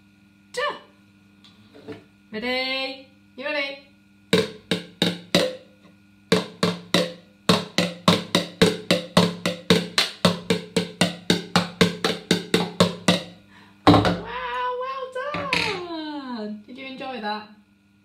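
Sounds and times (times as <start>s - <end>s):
plastic toy drums beating: 4.4s - 5.7s, 6.3s - 14.3s, 15.4s - 15.8s.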